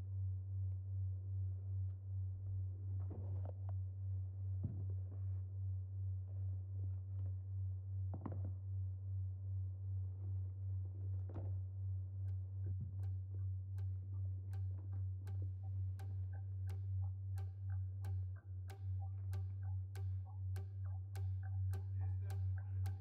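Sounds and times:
low hum: 0.0s - 23.0s
clock-like ticking: 12.3s - 23.0s.

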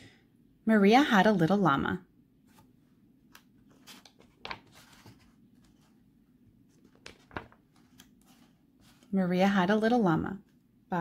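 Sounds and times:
paper rustling of pages: 3.3s - 6.0s, 6.6s - 9.2s.

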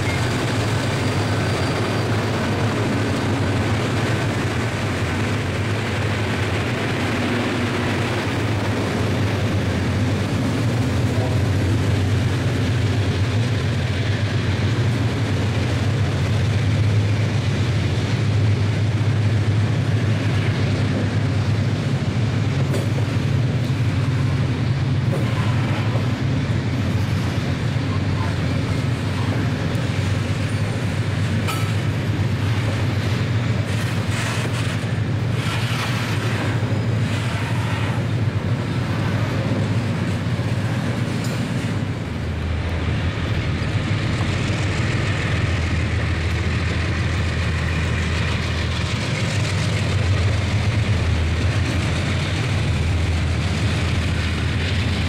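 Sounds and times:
train wheels rumbling on rail: 0.0s - 55.0s
clacks over rail joints: 22.4s - 55.0s.

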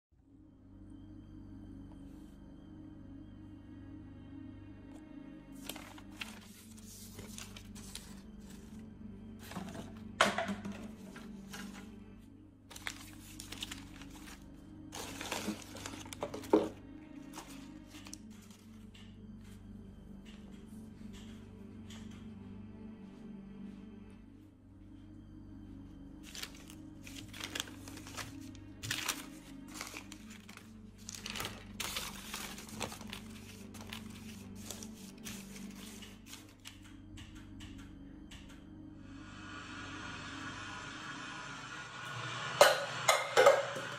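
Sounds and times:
low music drone: 0.1s - 43.9s
paper crumpling and rustling: 5.6s - 8.8s, 12.7s - 18.7s, 26.2s - 36.5s.

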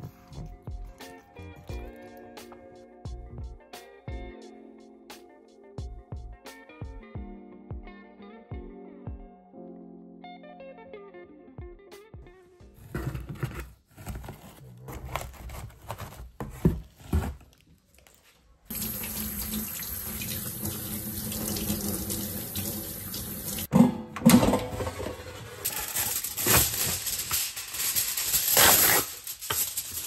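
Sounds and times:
air fryer basket rustling: 23.7s - 30.0s.

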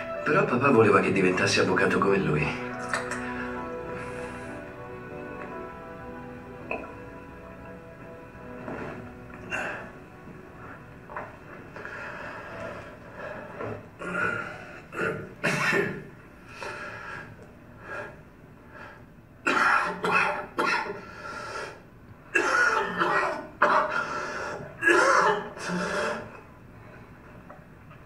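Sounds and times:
man coughing: 15.0s - 16.1s, 22.4s - 23.9s, 24.8s - 25.8s.

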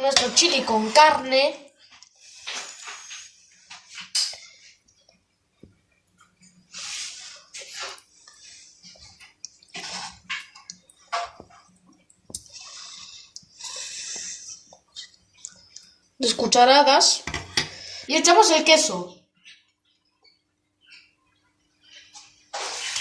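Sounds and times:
spoon squelching scrapes: 6.7s - 11.8s.

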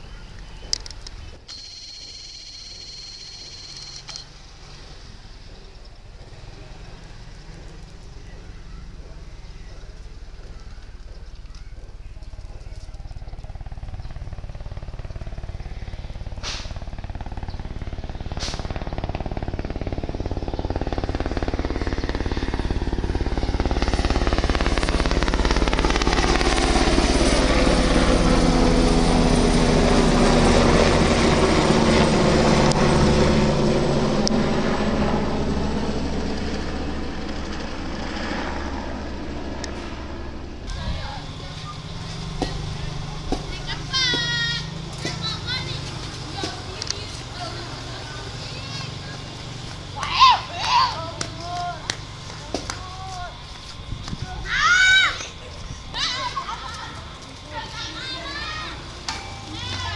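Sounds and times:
helicopter rotor and turbine whine: 0.0s - 59.9s
sharp clicks: 0.4s - 4.3s.

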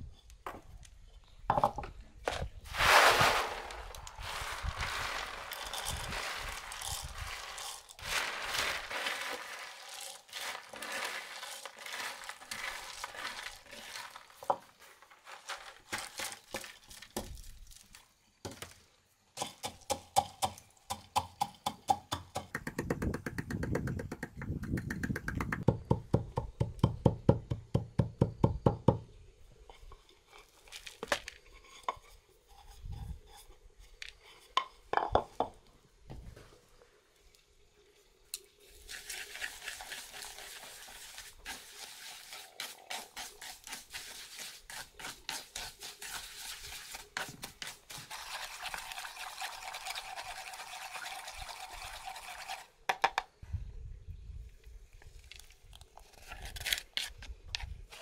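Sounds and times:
peanuts poured into mortar: 2.7s - 18.0s, 30.4s - 31.8s, 38.6s - 52.7s
wooden pestle pounding: 19.4s - 29.0s.

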